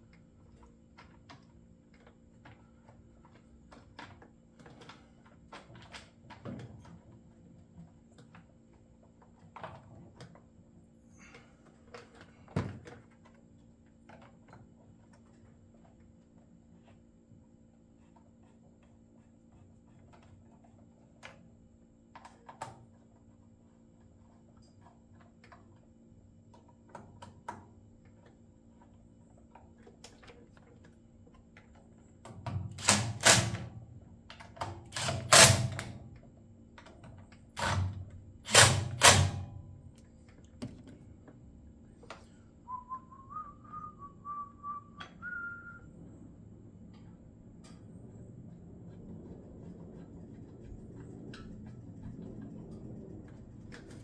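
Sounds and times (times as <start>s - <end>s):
cordless power driver bursts: 35.0s - 35.9s, 37.6s - 39.4s
person whistling: 42.6s - 45.9s.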